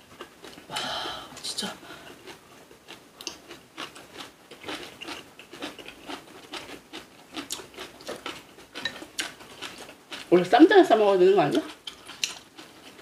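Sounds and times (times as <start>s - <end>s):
crunchy chewing: 2.0s - 10.3s, 11.5s - 13.0s.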